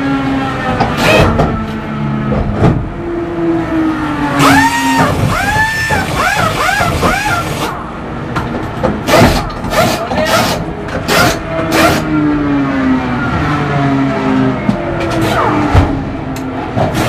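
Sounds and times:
impact wrench whines: 4.4s - 7.7s.

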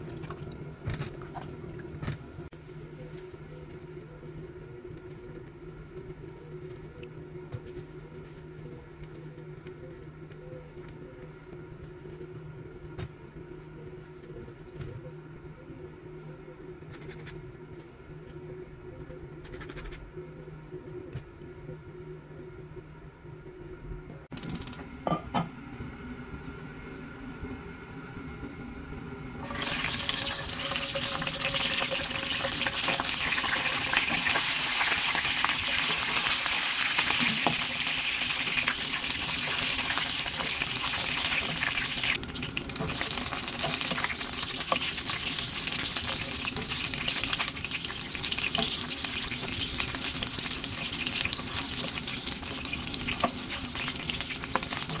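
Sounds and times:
eggplants sizzling in hot oil: 29.4s - 55.0s.

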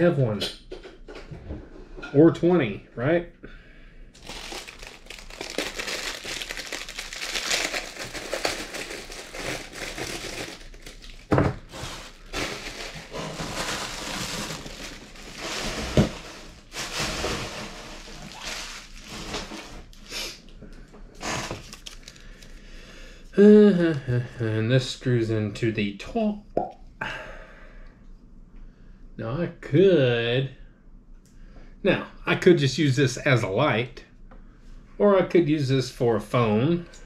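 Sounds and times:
packaging rustling and crinkling: 4.2s - 20.1s, 21.2s - 22.6s.

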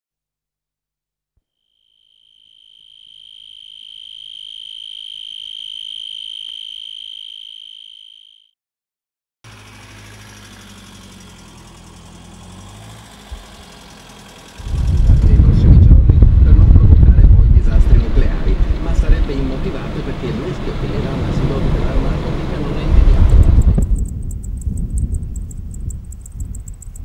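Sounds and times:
cricket trill: 1.6s - 8.5s, 23.6s - 27.0s
low hum: 12.9s - 27.0s.

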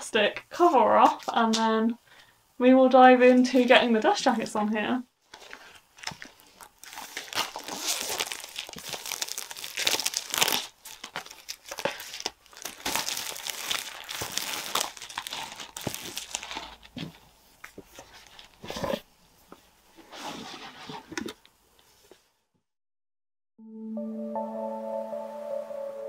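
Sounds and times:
plastic wrap crinkling: 5.2s - 19.0s.

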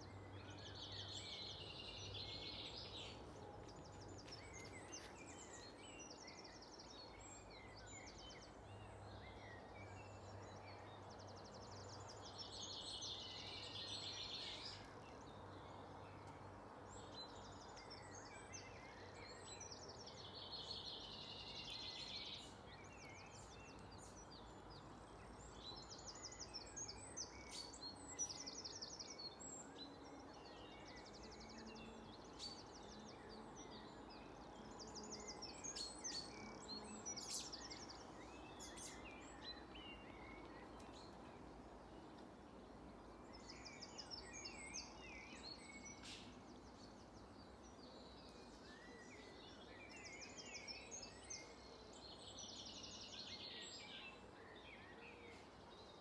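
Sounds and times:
songbirds singing: 0.0s - 56.0s.

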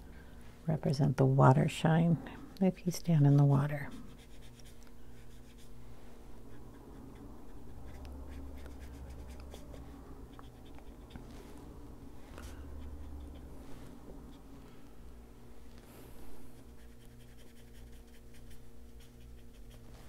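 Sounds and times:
low steady hum: 0.0s - 20.0s
ink tool rubbing on paper: 16.5s - 20.0s.

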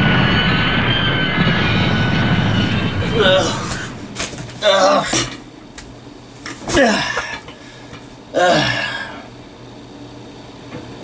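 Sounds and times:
man grunting: 3.0s - 3.8s, 4.6s - 5.3s, 6.7s - 7.4s, 8.3s - 9.3s.

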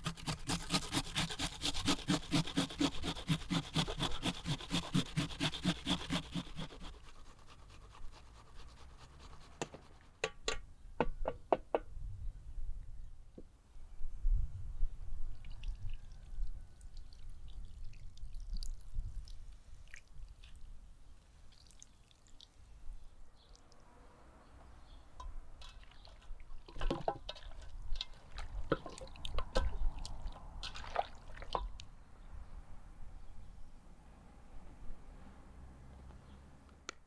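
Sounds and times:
liquid trickling and dripping: 15.4s - 20.6s, 21.4s - 22.6s, 25.2s - 31.9s
hands squelching raw chicken: 15.4s - 20.7s, 27.3s - 31.8s.

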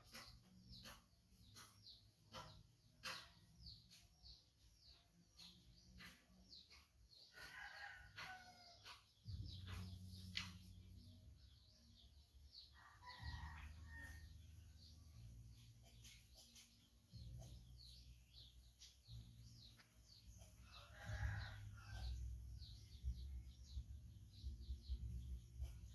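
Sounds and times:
birds chirping: 0.0s - 14.2s.

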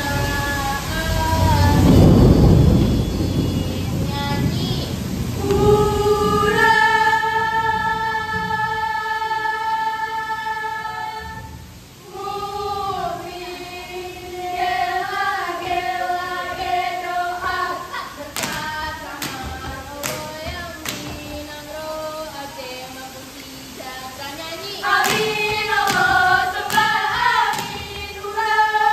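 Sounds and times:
girls singing a chant in unison: 0.0s - 28.9s
body-percussion hits: 18.4s - 21.6s, 24.9s - 28.1s.

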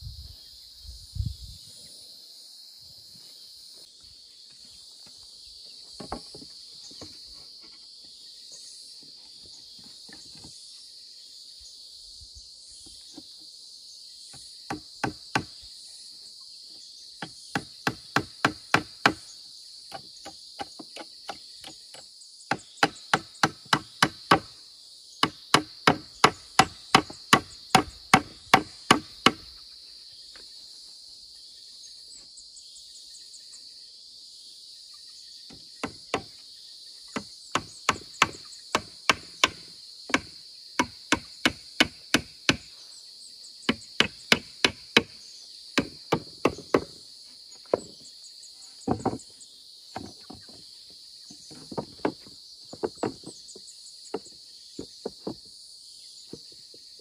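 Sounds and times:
hammer nailing wooden boards: 14.7s - 15.6s, 17.2s - 19.2s, 19.9s - 24.5s, 25.2s - 29.5s, 35.5s - 36.3s, 37.2s - 42.7s, 43.7s - 45.2s, 45.8s - 47.0s.

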